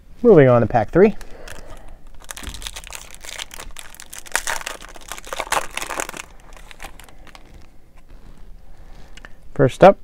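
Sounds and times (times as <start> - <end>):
foil wrapper tearing and crinkling: 1.4 - 7.8.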